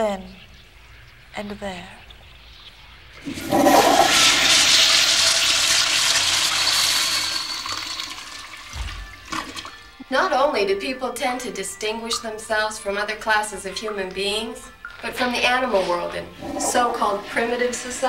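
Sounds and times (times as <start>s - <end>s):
toilet flushing: 3.2s - 9.8s.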